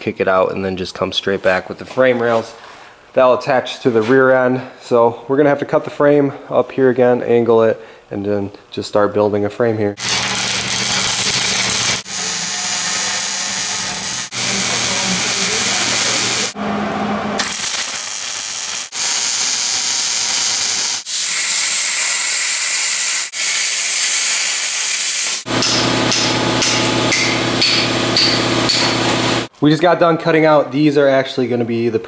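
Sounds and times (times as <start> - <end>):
welding hiss: 10.0 - 16.6, 17.4 - 29.5
steady hum: 25.5 - 29.5.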